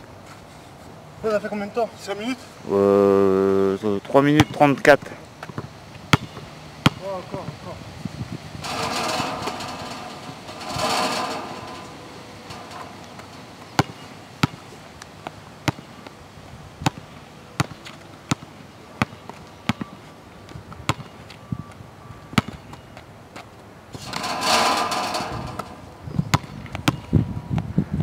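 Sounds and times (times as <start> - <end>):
basketball bouncing on hard court: 5.5 - 7.0, 13.7 - 14.6, 15.7 - 15.9, 16.8 - 17.0, 17.6 - 19.9, 20.9 - 21.1, 26.3 - 27.1.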